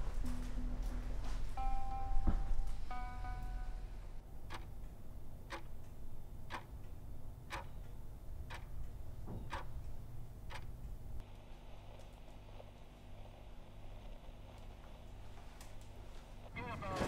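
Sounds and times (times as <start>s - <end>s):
wall clock ticking: 4.2s - 11.2s.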